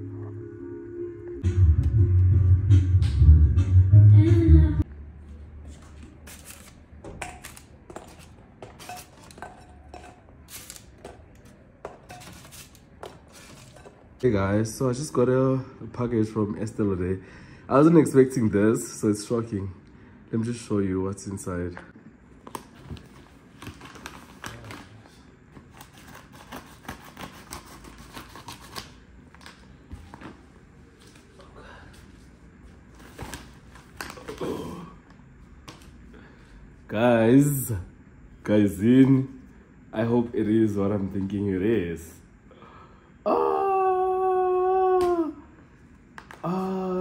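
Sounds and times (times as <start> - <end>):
utensils and dishes clinking: 8.7 - 10.7, 12.0 - 12.7
package being opened: 10.5 - 11.5.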